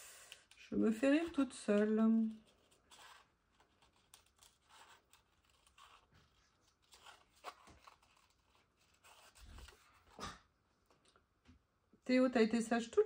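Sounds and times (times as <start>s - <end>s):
scissors snipping paper: 0.3s - 9.8s
paper rustling: 1.1s - 10.4s.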